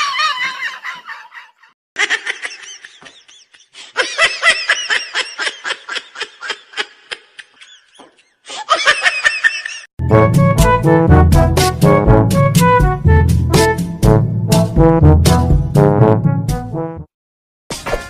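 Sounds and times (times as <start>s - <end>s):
music: 10.0s - 17.1s.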